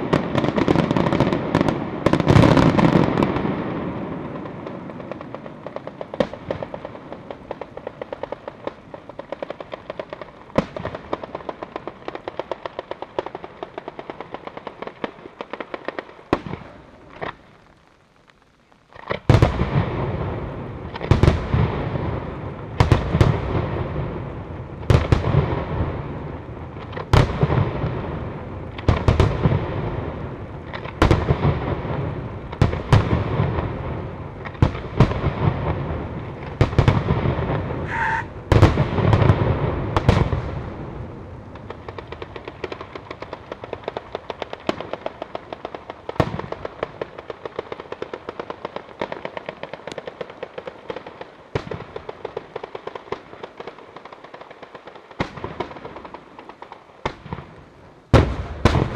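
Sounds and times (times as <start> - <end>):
firecrackers crackling: 0.0 - 58.9
fireworks shells bursting: 37.8 - 38.7.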